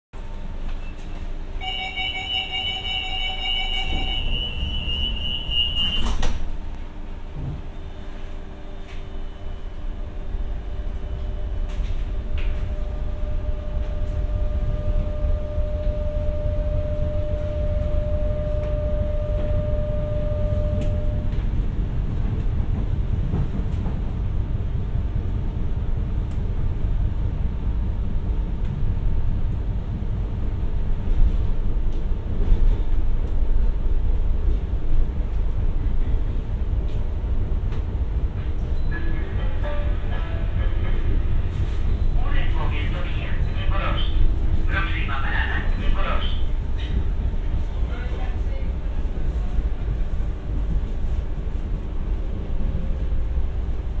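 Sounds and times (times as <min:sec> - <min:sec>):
train running rumble: 0:00.2 - 0:54.0
high door warning tone: 0:01.6 - 0:06.4, 0:12.6 - 0:21.4
faint steady hum: 0:12.6 - 0:21.3.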